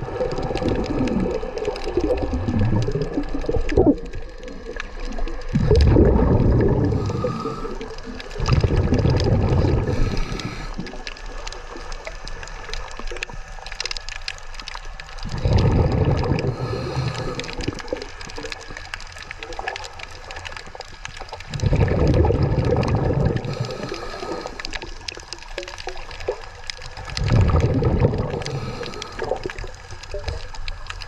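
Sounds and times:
underwater breath bubbles gurgling: 0:00.0 - 0:31.0.

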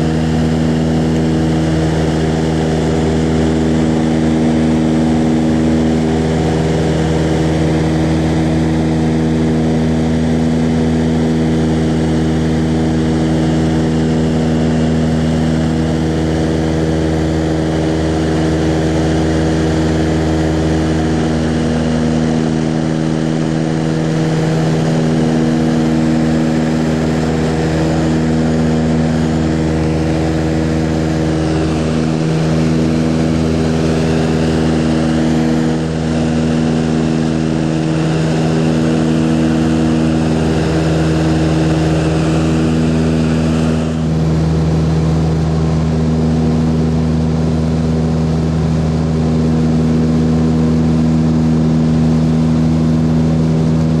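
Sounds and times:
aircraft engine and propeller drone: 0:00.0 - 0:54.0.

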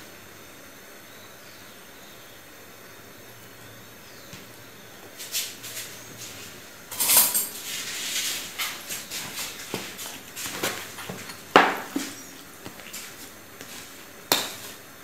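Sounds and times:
spoon scraping plastic tub: 0:05.3 - 0:14.8.

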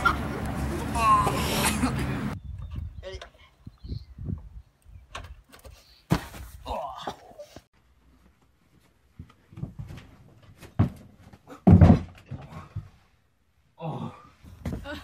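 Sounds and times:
heavy thud of person landing: 0:06.1 - 0:06.6, 0:11.6 - 0:12.9.

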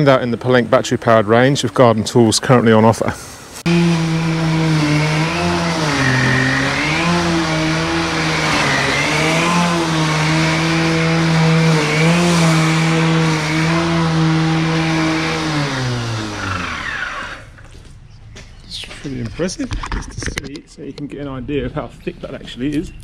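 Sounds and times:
grass being cut: 0:03.6 - 0:17.6
electric mower whirring: 0:03.6 - 0:17.7.

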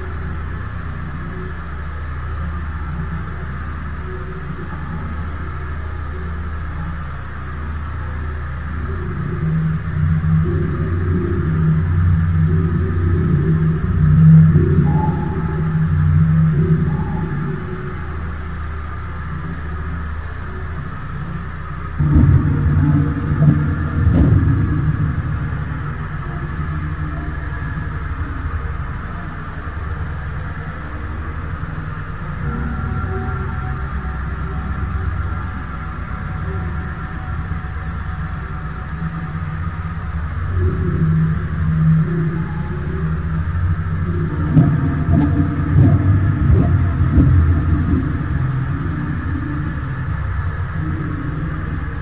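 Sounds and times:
wind and water rumble: 0:20.9 - 0:42.1, 0:43.0 - 0:52.0
wind buffeting microphone: 0:22.0 - 0:26.0.

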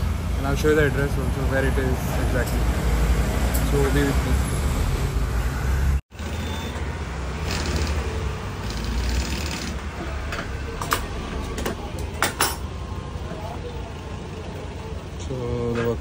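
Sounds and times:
sewing machine stitching: 0:07.4 - 0:09.8.

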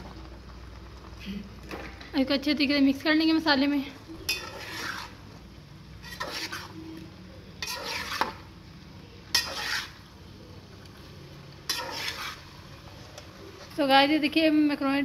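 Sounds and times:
spoon scraping in pot: 0:04.1 - 0:08.6, 0:09.3 - 0:10.2, 0:11.6 - 0:13.0.

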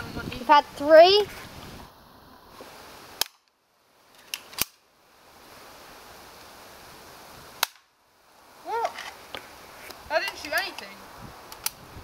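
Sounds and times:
toy pistol cracks: 0:03.2 - 0:03.5, 0:04.3 - 0:04.8, 0:07.6 - 0:07.8.

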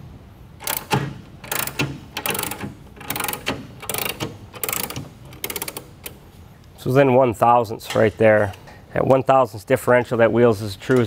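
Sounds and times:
ratchet wrench clicking: 0:00.6 - 0:06.2.

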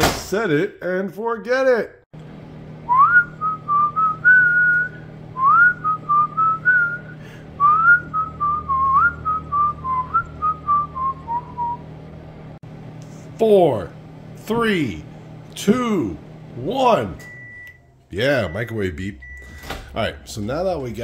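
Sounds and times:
microwave oven humming: 0:02.2 - 0:21.0
man whistling a tune: 0:02.9 - 0:11.8.

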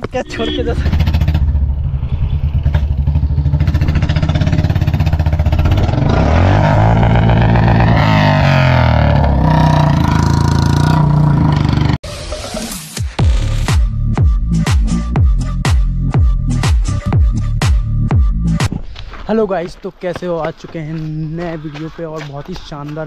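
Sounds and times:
vehicle engine revving: 0:00.5 - 0:12.0.

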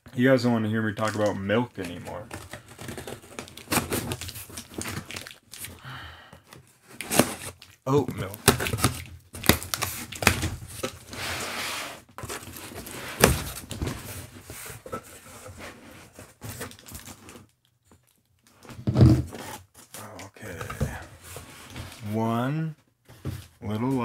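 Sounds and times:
cardboard flaps scraping and rustling: 0:09.7 - 0:17.4.

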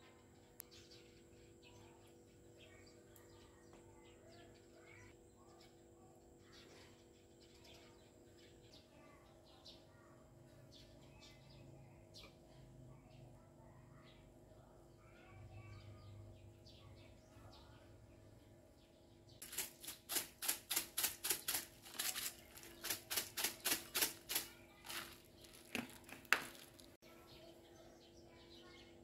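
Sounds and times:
faint bird chirps: 0:00.0 - 0:19.4.

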